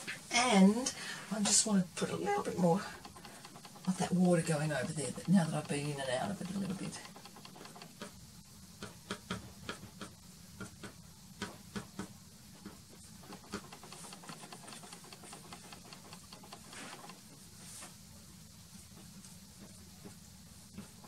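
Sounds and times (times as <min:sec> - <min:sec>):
soft brushing strokes: 0:12.5 - 0:21.0.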